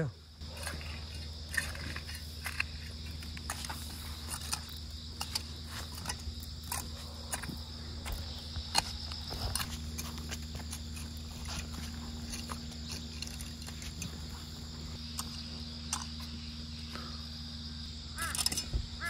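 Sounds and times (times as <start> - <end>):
insects chirring: 0.0 - 19.0
crow cawing: 18.2 - 18.5.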